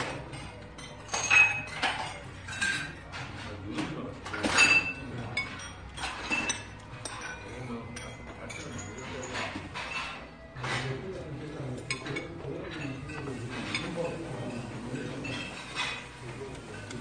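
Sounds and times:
metal utensils clinking on ceramic: 0.0s - 17.0s.

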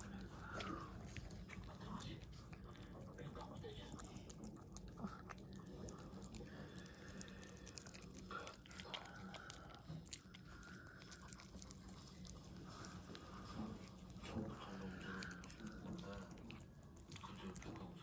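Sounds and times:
dog chewing and smacking: 0.0s - 18.0s.

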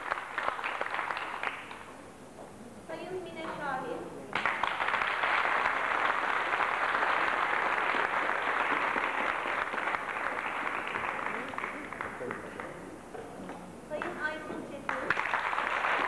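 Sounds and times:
audience applauding: 0.0s - 2.0s, 4.3s - 12.9s, 14.9s - 16.0s.

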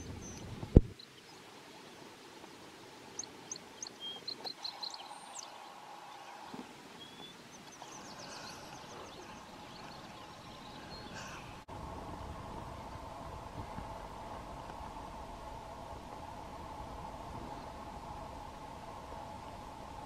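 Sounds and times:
small birds chirping: 0.0s - 11.7s
faint outdoor background: 0.0s - 20.0s.

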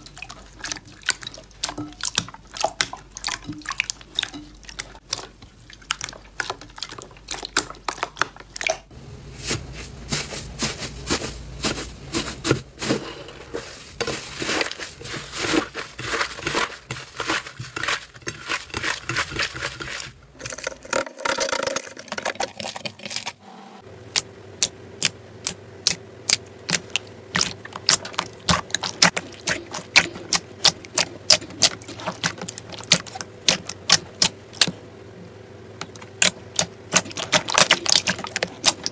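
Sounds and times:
crunchy slime crackling: 24.1s - 34.7s, 35.9s - 38.9s.

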